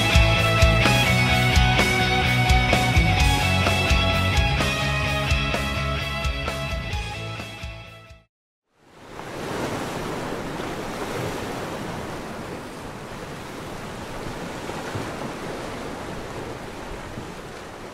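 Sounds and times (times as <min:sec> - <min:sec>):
sea waves rushing: 0:08.8 - 0:17.9.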